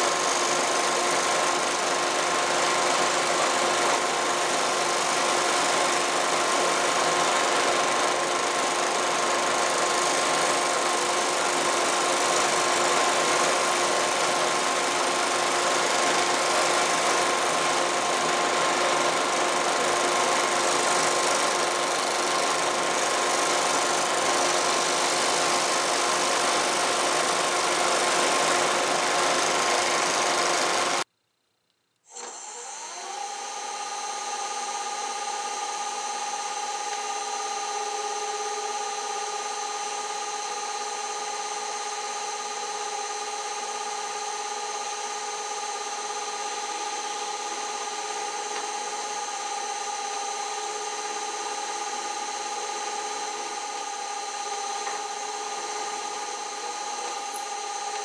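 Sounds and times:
drill press motor whine: 32.1s - 58.0s
scroll saw cutting wood: 53.8s - 54.1s, 54.8s - 55.7s, 57.0s - 58.0s.

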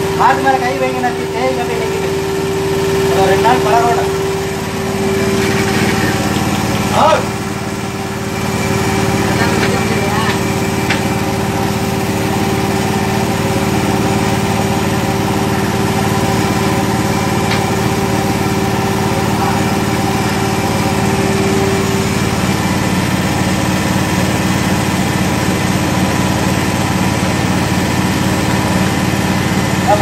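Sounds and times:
high steady tone: 0.0s - 24.0s
vacuum pump motor humming: 0.0s - 30.0s.

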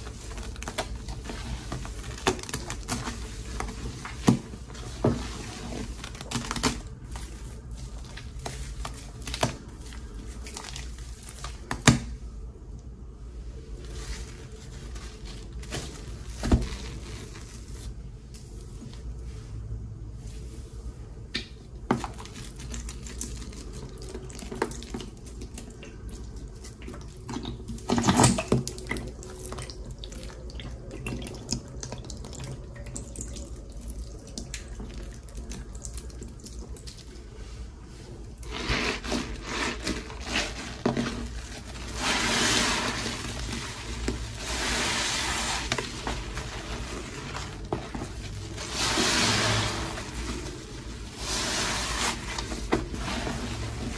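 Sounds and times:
wet sponge crackling: 0.0s - 12.1s, 13.5s - 19.0s, 21.9s - 53.9s
sponge squelch: 0.0s - 12.2s, 13.4s - 19.6s, 21.9s - 53.9s
foamy liquid gushing and splashing: 38.4s - 53.9s.

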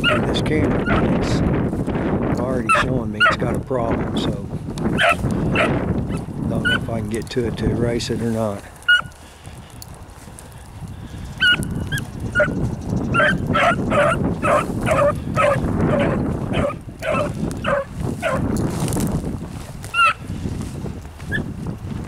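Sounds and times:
wind rumble on microphone: 0.0s - 22.0s
dog baying high yelps: 5.0s - 5.8s, 8.9s - 9.1s, 11.4s - 11.6s, 12.4s - 18.4s, 20.0s - 20.2s.

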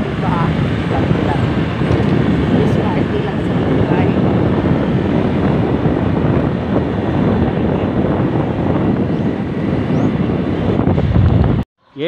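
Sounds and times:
wind buffeting microphone: 0.0s - 11.6s
moving vehicle rumble: 0.0s - 12.0s.

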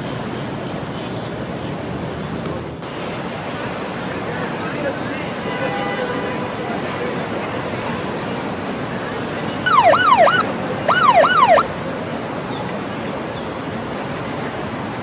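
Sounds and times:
steady background rush: 0.0s - 15.0s
siren yelp bursts: 9.7s - 11.7s.

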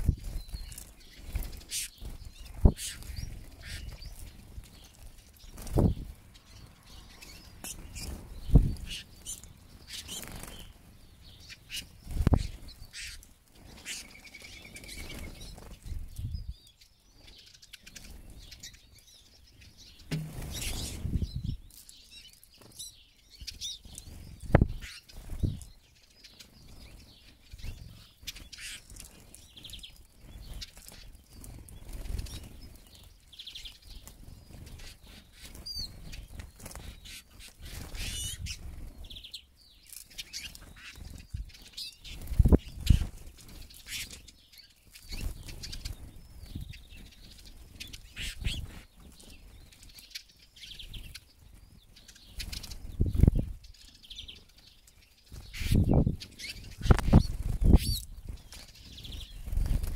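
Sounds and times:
bird wings fluttering: 0.0s - 6.1s, 7.6s - 10.8s, 20.1s - 21.5s, 33.8s - 39.0s, 40.1s - 44.2s, 45.0s - 46.7s, 55.3s - 59.9s
birds chirping and twittering: 0.0s - 59.9s
bird trill: 55.4s - 59.6s.

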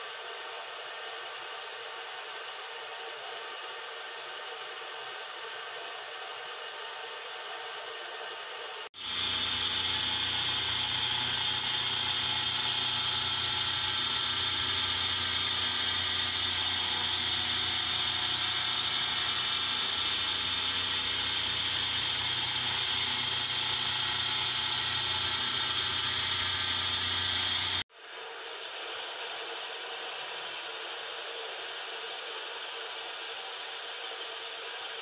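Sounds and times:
milling machine cutting metal: 9.0s - 27.8s.

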